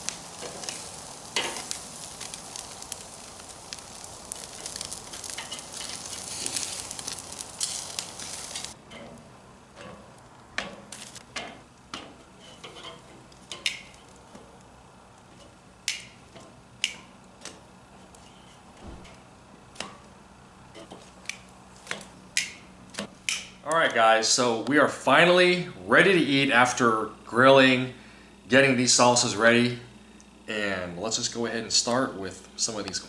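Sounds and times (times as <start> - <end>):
food sizzling on grill: 0.0 - 27.9
tongs clicking on grill grate: 0.1 - 9.2, 10.6 - 14.4, 15.3 - 17.7, 20.7 - 23.6.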